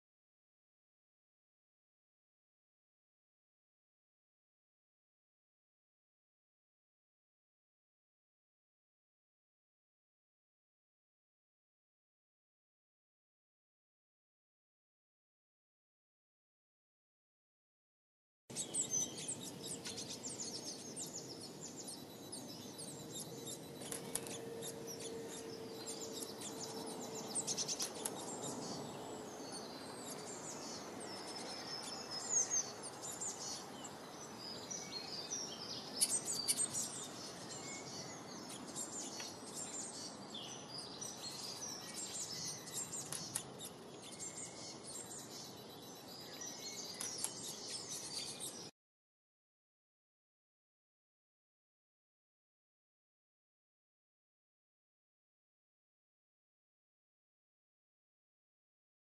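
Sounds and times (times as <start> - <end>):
songbirds chirping: 18.5 - 48.7.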